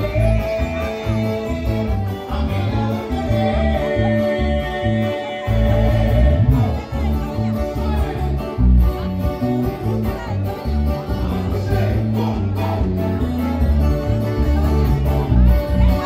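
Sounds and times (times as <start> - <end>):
electric bass line: 0.0 - 16.0
strummed acoustic guitars: 0.0 - 16.0.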